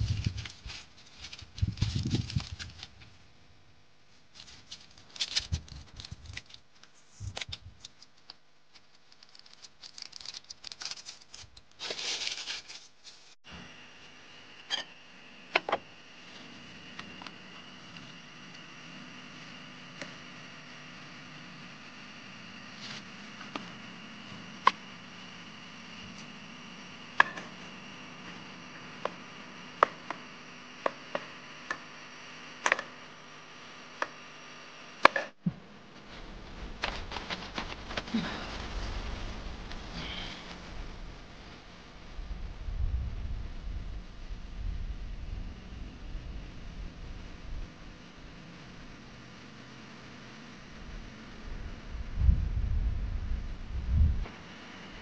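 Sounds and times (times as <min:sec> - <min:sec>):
food packet crinkling: 0:04.4 - 0:13.3, 0:36.8 - 0:39.2.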